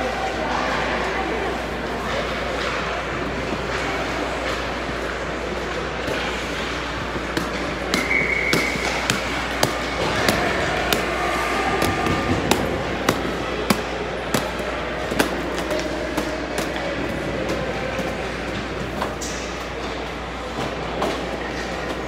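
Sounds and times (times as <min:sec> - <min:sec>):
rink hall noise: 0:00.0 - 0:22.0
pucks and sticks clacking: 0:00.5 - 0:22.0
skates scraping on ice: 0:02.0 - 0:19.2.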